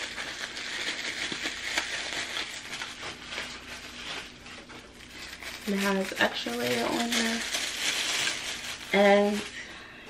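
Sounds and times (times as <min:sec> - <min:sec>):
bubble wrap crinkling: 0:00.0 - 0:09.8.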